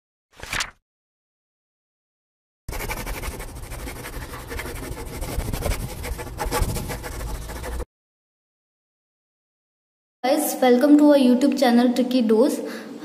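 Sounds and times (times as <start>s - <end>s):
marker scribbling on whiteboard: 2.7s - 7.9s.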